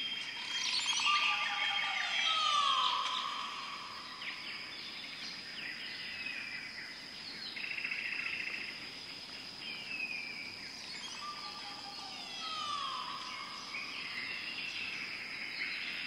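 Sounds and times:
high insect drone: 0.0s - 16.0s
bird chirps and whistles: 11.1s - 13.5s.

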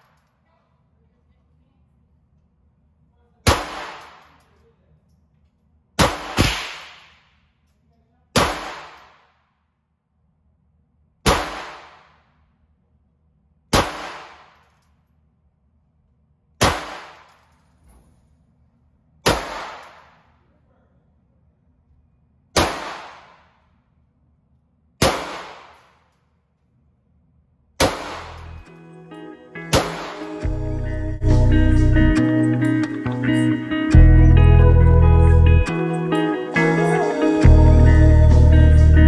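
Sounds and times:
gunshots with echo: 3.4s - 4.5s, 6.0s - 7.3s, 8.4s - 9.4s, 11.2s - 12.3s, 13.7s - 14.7s, 16.6s - 17.4s, 19.2s - 20.3s, 22.6s - 23.6s, 25.0s - 25.9s, 27.8s - 28.7s, 29.7s - 30.5s.

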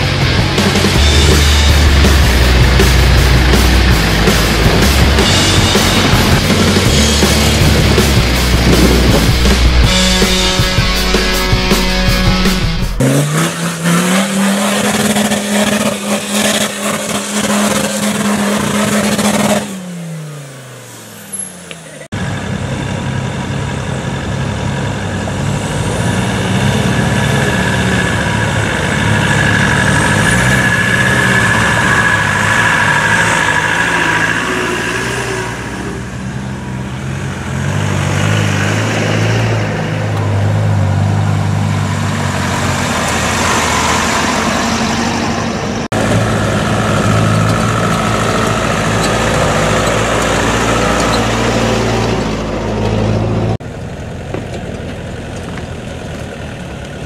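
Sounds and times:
off-road engine revving: 0.0s - 57.0s.

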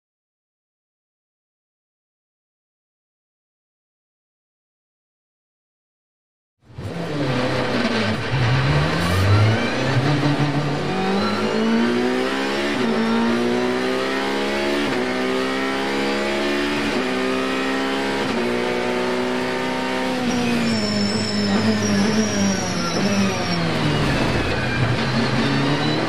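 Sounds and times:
race car engine at full throttle: 6.7s - 26.0s.

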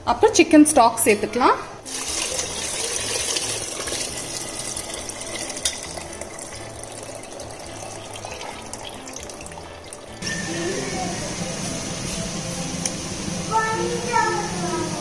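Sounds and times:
stock pouring through a strainer: 1.9s - 10.2s.

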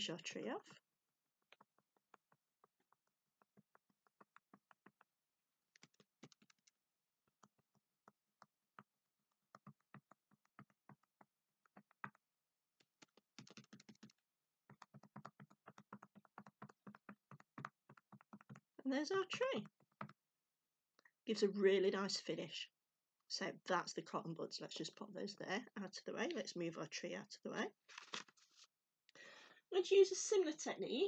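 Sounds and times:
cotton buds dabbing paint on paper: 0.8s - 20.3s.

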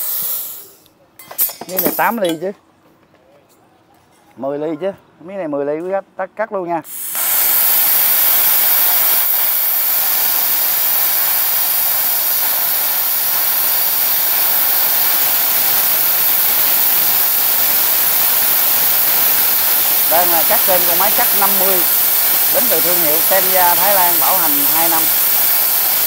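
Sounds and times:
plasma cutter hissing: 0.0s - 0.8s, 6.9s - 26.0s.

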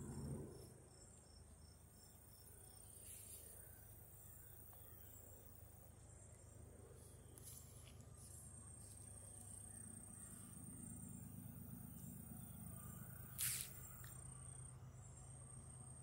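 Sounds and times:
faint low rumble: 0.0s - 1.7s
insects chirping in grass: 0.1s - 16.0s.

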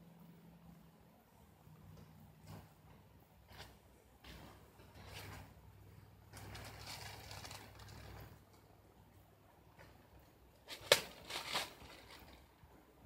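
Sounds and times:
soft rustling: 1.7s - 8.8s
sharp crack: 10.6s - 12.4s.

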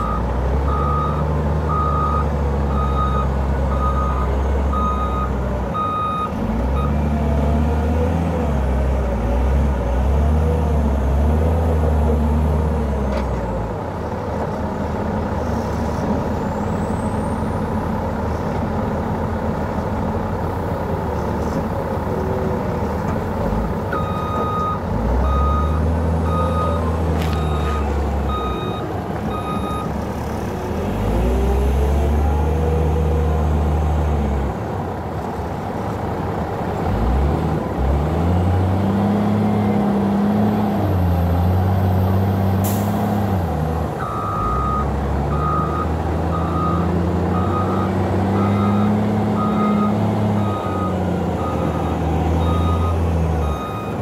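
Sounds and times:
reversing alarm beeping: 0.0s - 7.0s, 24.0s - 29.9s, 44.0s - 54.0s
diesel engine revving: 0.0s - 54.0s.

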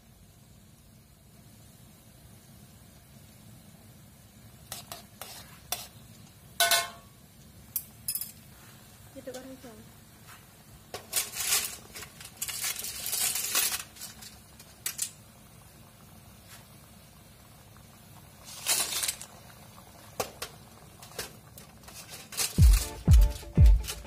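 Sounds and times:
sauce simmering: 0.0s - 9.1s, 9.9s - 23.0s
utensil scraping in a wok: 4.5s - 7.1s, 10.2s - 15.2s, 18.4s - 19.4s, 20.2s - 24.0s.

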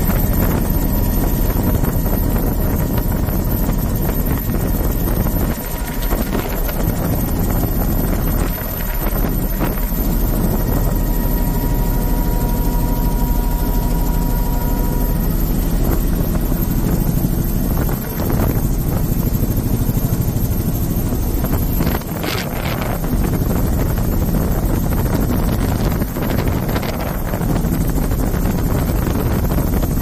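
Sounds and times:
helicopter rotor and engine: 0.0s - 30.0s
wind rushing over microphone: 0.0s - 30.0s.

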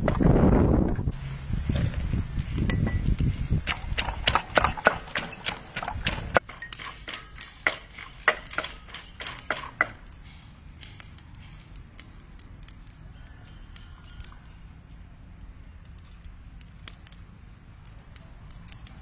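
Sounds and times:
pestle pounding in clay mortar: 2.7s - 10.0s.

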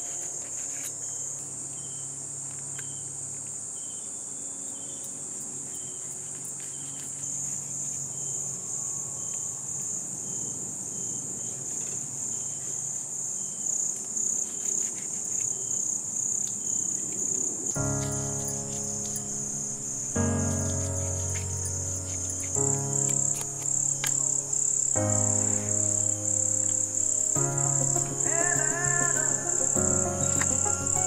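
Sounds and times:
crickets trilling: 0.0s - 31.0s
background music: 17.8s - 31.0s.

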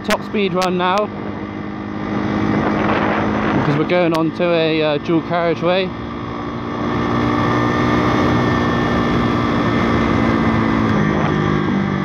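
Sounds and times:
motorbike engine pulling hard: 0.0s - 12.0s
wind rushing over microphone: 0.0s - 12.0s.

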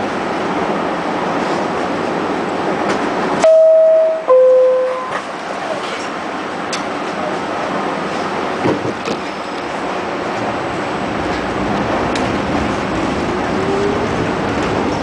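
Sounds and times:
subway car hum and hiss: 0.0s - 15.0s
two-tone door-closing chime: 3.4s - 5.3s.

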